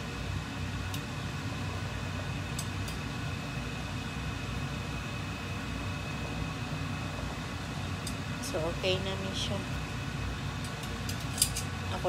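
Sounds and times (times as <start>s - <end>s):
low rumble and hiss: 0.0s - 12.0s.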